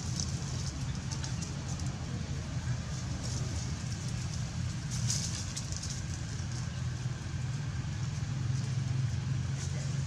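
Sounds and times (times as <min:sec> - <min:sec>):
low engine-like hum: 0:00.0 - 0:10.0
rustling: 0:02.8 - 0:07.0.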